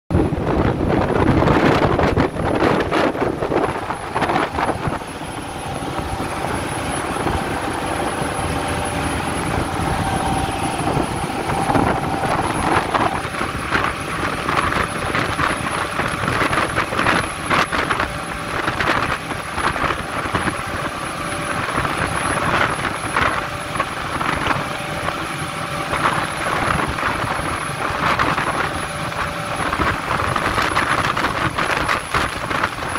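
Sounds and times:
churning wake: 0.1s - 32.9s
rushing wind: 0.1s - 32.9s
wind buffeting microphone: 0.1s - 32.9s
boat engines running: 0.2s - 32.9s.

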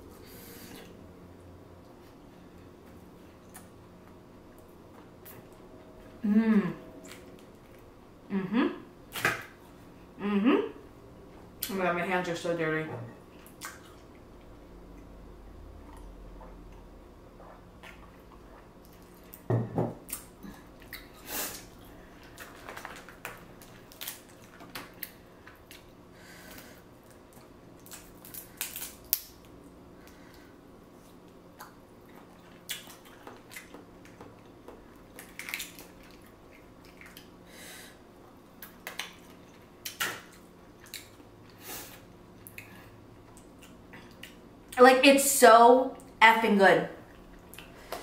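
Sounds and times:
faint steady hum: 0.0s - 48.0s
wet squishes and chewing: 2.8s - 5.7s, 13.3s - 15.2s, 15.8s - 37.4s, 38.5s - 44.8s, 47.0s - 48.0s
seafood shells cracking: 27.8s - 29.6s.

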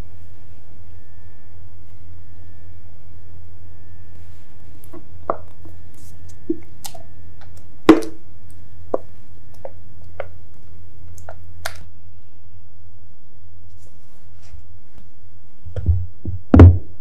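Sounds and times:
steady low hum: 0.0s - 17.0s
batter squishing: 4.8s - 11.9s.

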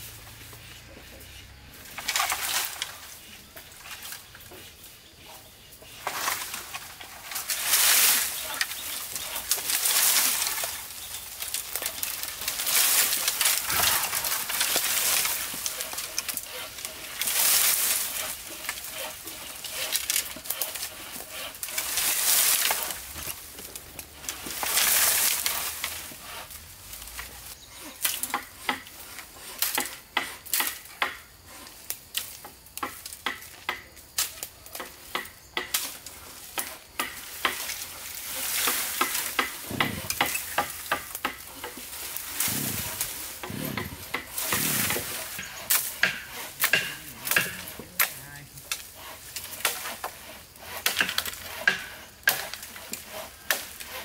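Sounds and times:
scraping strokes on wood: 0.0s - 54.0s.

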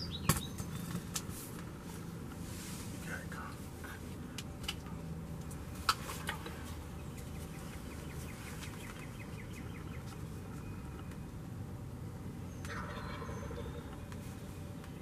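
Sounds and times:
bird trilling: 6.9s - 11.2s, 12.4s - 14.1s.

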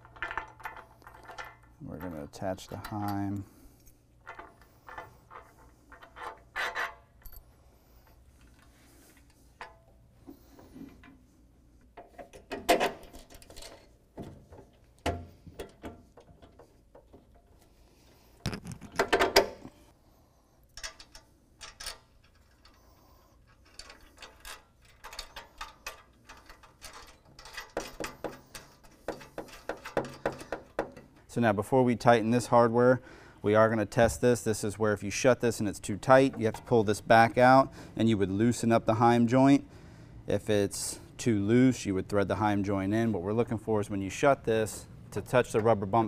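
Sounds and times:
steel hardware clinking: 0.0s - 7.5s, 20.7s - 31.1s.

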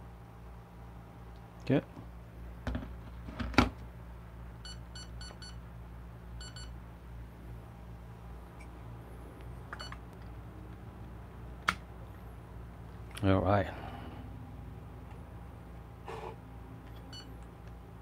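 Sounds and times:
digital scale beeps: 4.6s - 5.6s, 6.4s - 6.7s.

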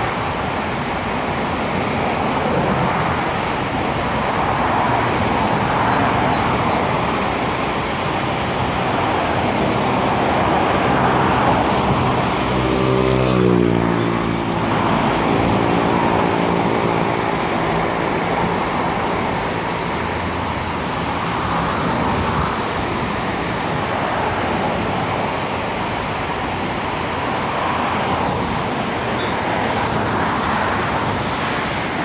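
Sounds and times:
road traffic rushing: 0.0s - 32.0s
vehicle engine passing: 9.8s - 17.8s.

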